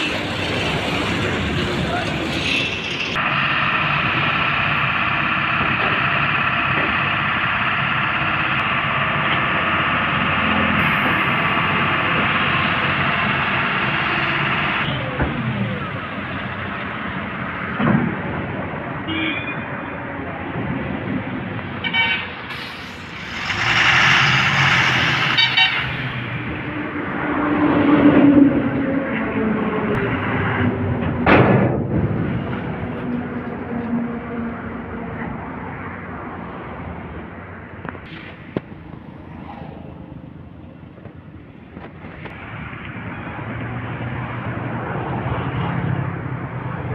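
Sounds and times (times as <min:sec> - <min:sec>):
diesel engine running: 0:00.0 - 0:19.0, 0:22.4 - 0:35.7.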